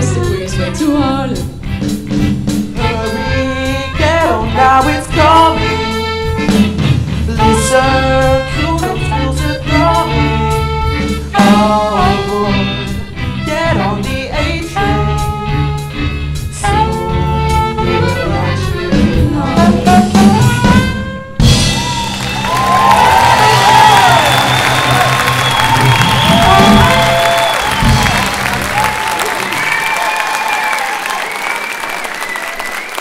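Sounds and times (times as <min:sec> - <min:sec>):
jazz combo playing swing: 0:00.0 - 0:28.8
audience applause and cheering: 0:21.5 - 0:33.0.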